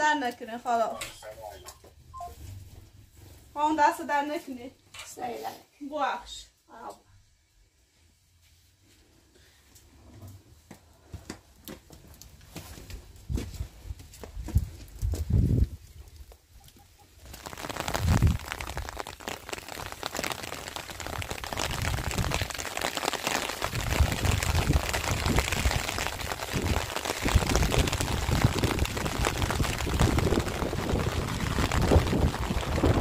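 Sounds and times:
wind buffeting microphone: 14.3 - 15.9, 18.0 - 18.4, 23.7 - 33.0
rain falling: 16.1 - 33.0.

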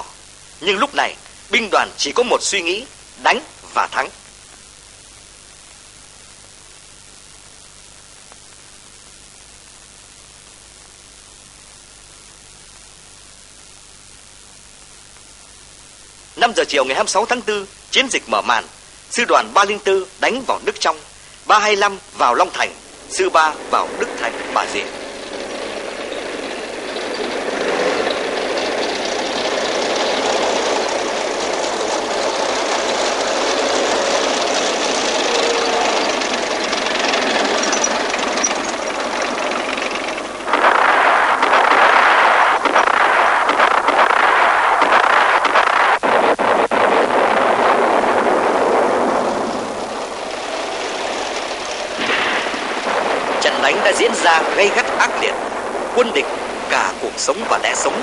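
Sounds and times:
sharp cracks: 20.9 - 58.0
tank engines rumbling: 21.8 - 43.8, 47.9 - 58.0
tank tracks clattering: 23.6 - 40.8, 49.8 - 55.2.

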